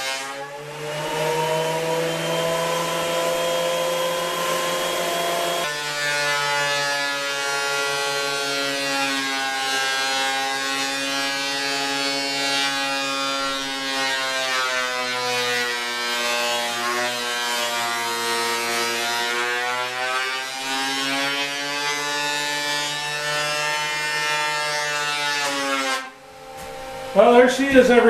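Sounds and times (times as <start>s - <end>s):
thickness planer whining: 0.0s - 28.0s.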